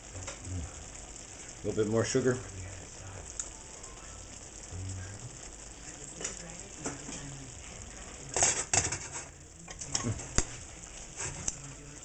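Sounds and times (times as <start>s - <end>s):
food sizzling and bubbling in pan: 0.0s - 12.0s
utensil clicking against pan: 6.1s - 7.3s, 8.3s - 10.6s
pan clattering and scraping: 8.4s - 10.4s.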